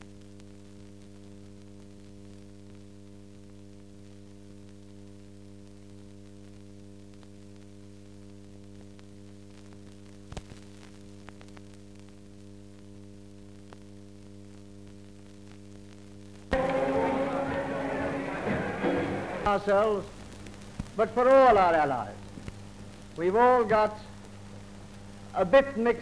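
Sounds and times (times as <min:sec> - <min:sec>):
electrical hum with hiss: 0:00.0 - 0:26.0.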